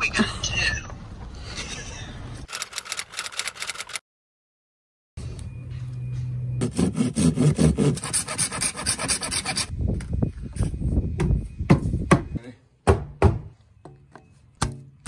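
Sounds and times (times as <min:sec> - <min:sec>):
hand saw cutting plastic pipe: 0:06.6 - 0:09.7.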